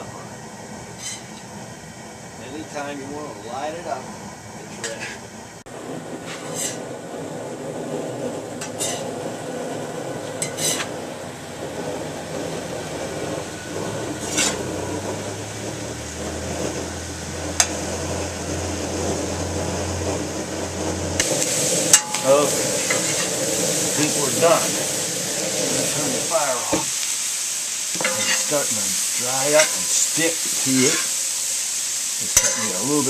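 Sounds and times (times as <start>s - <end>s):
hiss of stir-frying: 0.0s - 7.0s, 8.4s - 33.0s
metal spatula scraping a wok: 0.9s - 1.5s, 4.8s - 5.2s, 6.2s - 6.9s, 8.6s - 9.2s, 10.2s - 11.2s, 13.8s - 15.0s, 16.2s - 27.0s, 27.9s - 31.2s, 32.2s - 33.0s.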